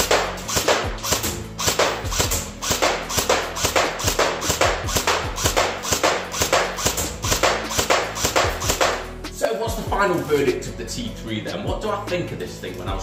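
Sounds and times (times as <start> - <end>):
airsoft rifle shots: 0.0 - 9.1.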